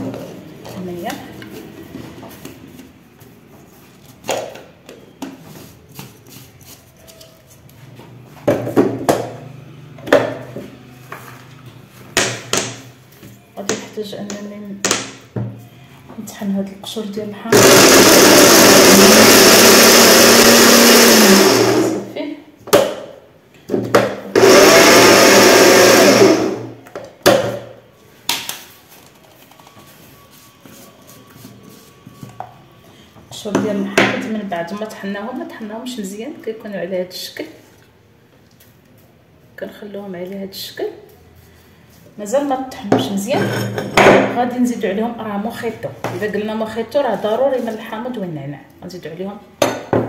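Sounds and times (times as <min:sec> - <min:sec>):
electric blender pulsing: 0:17.5 - 0:22.1, 0:24.3 - 0:26.7.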